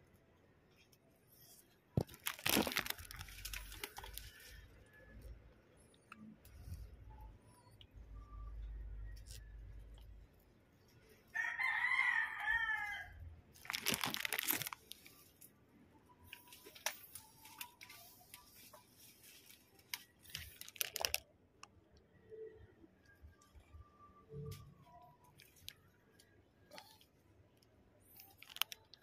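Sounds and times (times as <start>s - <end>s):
leaves and stems rustling: 1.3s - 4.9s, 13.6s - 15.5s, 16.2s - 21.2s
rooster crowing: 11.3s - 13.2s.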